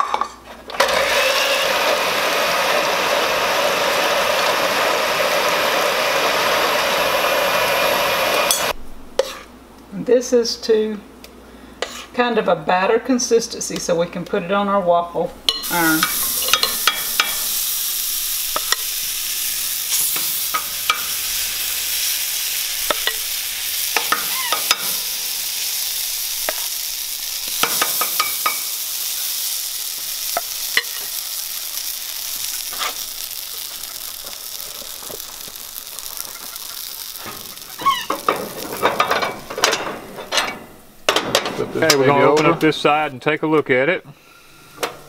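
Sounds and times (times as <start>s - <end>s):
batter sizzling in waffle iron: 0.8s - 9.4s, 15.6s - 39.4s.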